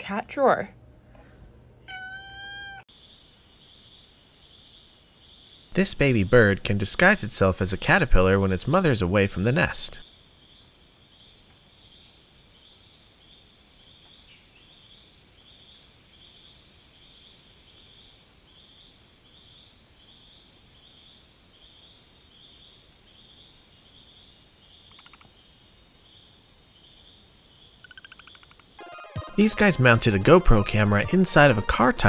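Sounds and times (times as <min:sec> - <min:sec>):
insect chirp: 0:01.9 - 0:29.1
pulsed insect call: 0:02.6 - 0:29.1
high-pitched insect drones: 0:09.6 - 0:29.1.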